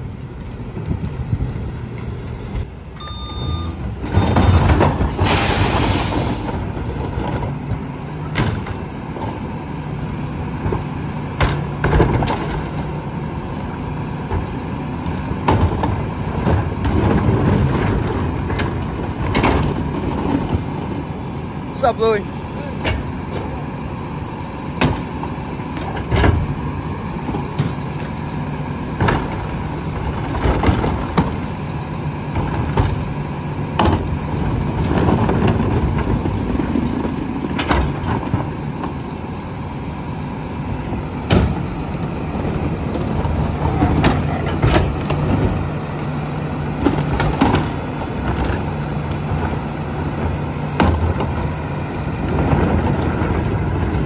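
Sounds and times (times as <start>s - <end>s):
garbage truck idling: 0.0s - 54.0s
bins banging and clunking: 3.3s - 9.4s, 15.3s - 21.1s, 28.8s - 31.6s, 32.2s - 39.0s, 40.9s - 54.0s.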